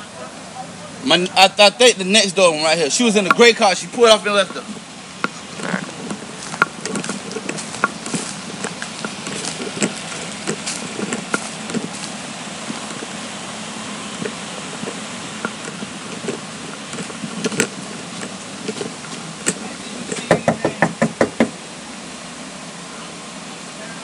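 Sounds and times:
light footsteps: 0:03.1 - 0:21.4
knocking on a door: 0:20.2 - 0:21.6.

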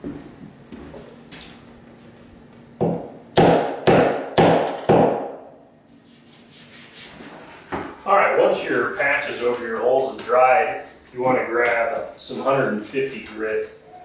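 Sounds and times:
hammer tapping on drywall: 0:02.8 - 0:05.4.

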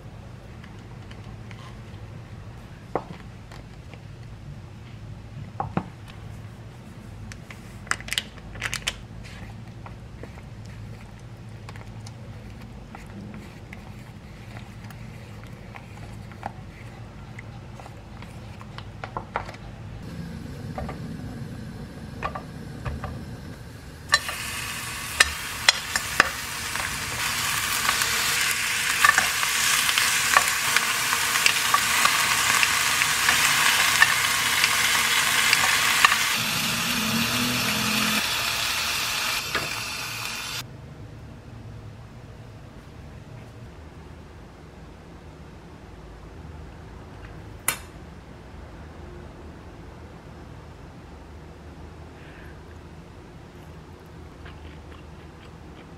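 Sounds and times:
meat sizzling in a pan: 0:24.0 - 0:40.6.

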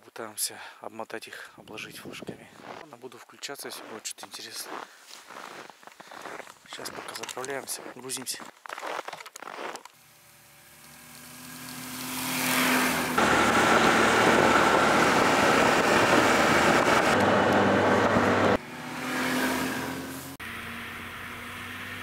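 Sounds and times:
snowmobile engine running: 0:10.0 - 0:22.0
snowmobile passing by: 0:10.0 - 0:22.0.

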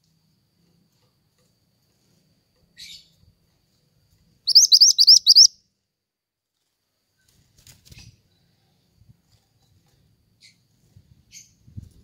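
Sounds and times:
songbird calling: 0:04.5 - 0:05.6.

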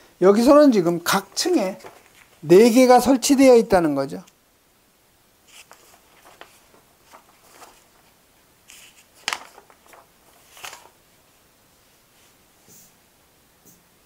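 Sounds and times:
paper rustling: 0:00.4 - 0:03.2, 0:05.4 - 0:11.2
sharp paper crack: 0:01.1 - 0:02.4, 0:05.5 - 0:11.0.

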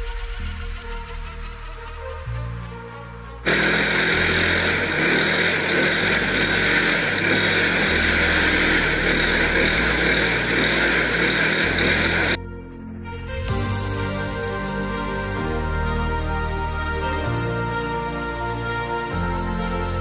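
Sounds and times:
electronic background music: 0:00.0 - 0:20.0
lawnmower engine running: 0:03.5 - 0:19.4.

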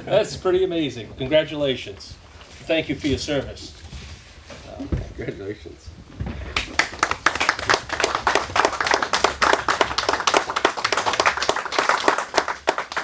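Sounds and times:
people applauding: 0:06.5 - 0:13.0.

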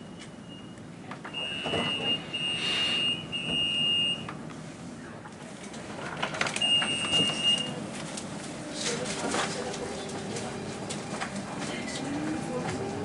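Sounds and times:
high electronic door warning beep: 0:00.0 - 0:04.3, 0:06.6 - 0:07.8.

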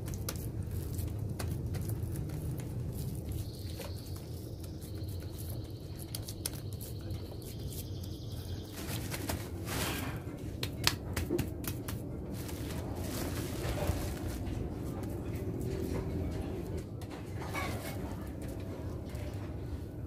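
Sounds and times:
hands patting wet mud: 0:00.0 - 0:05.4, 0:10.6 - 0:13.2
steady low rumble: 0:00.0 - 0:08.6, 0:10.1 - 0:17.4
woven sack rustling: 0:12.1 - 0:15.2.

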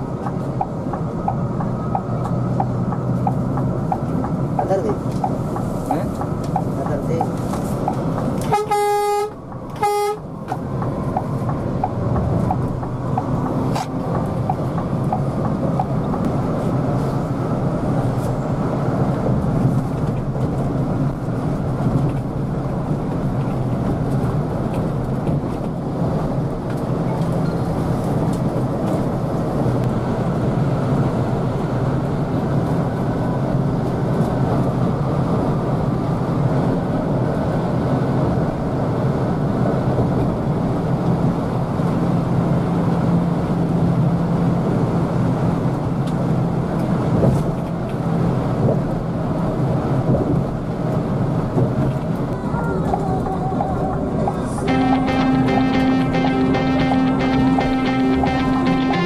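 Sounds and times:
coach engine and tyre drone: 0:00.0 - 0:59.0
vehicle horn blasts: 0:08.4 - 0:10.2, 0:54.7 - 0:59.0.

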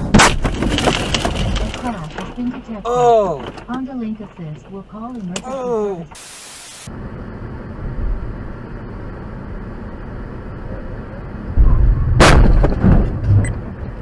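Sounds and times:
car crash: 0:00.0 - 0:04.8, 0:11.6 - 0:14.0
car road noise: 0:00.0 - 0:14.0
burst of static hiss: 0:06.1 - 0:06.9
loud low rumble: 0:06.9 - 0:14.0.

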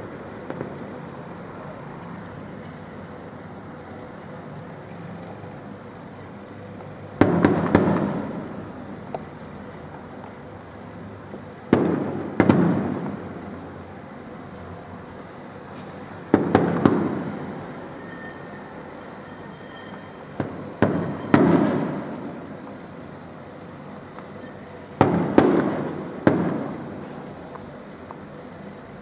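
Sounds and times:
firework shells bursting: 0:07.2 - 0:09.3, 0:11.7 - 0:13.4, 0:16.3 - 0:18.0, 0:19.9 - 0:22.4, 0:24.2 - 0:27.1.

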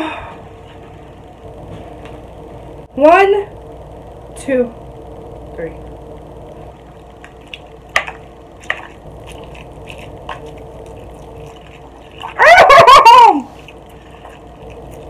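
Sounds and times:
slurping and chewing noodles: 0:08.6 - 0:12.6, 0:13.4 - 0:15.0
high-pitched cry: 0:12.4 - 0:13.6.

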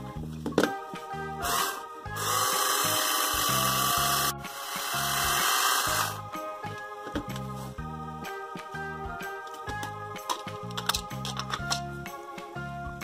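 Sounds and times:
background music: 0:00.0 - 0:13.0
toy blender whirring: 0:01.4 - 0:06.2.

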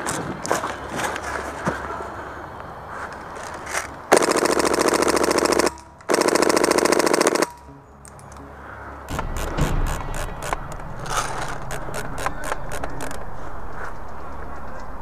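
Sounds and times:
airsoft rifle full-auto bursts: 0:04.1 - 0:07.6.

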